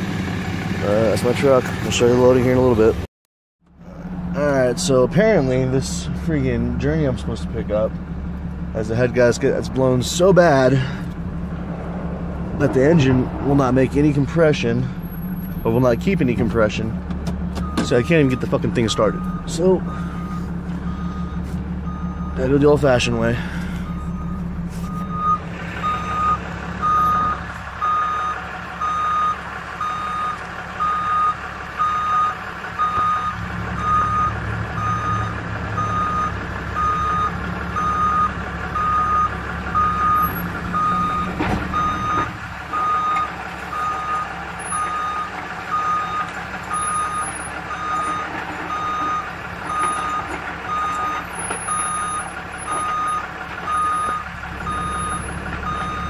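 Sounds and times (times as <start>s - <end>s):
truck engine rumble: 0.0s - 56.0s
backup alarm beeping: 17.6s - 22.6s, 23.8s - 56.0s.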